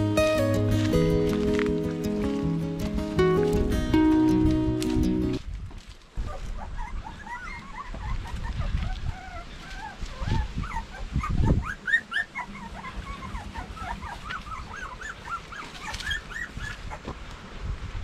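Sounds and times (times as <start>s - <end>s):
puppies whimpering: 6.2s - 17.1s.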